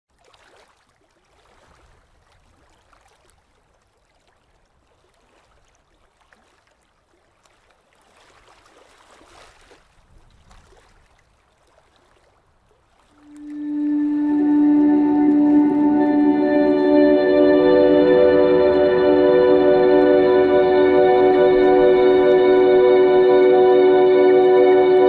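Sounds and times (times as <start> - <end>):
water lapping: 0.1 - 16.5.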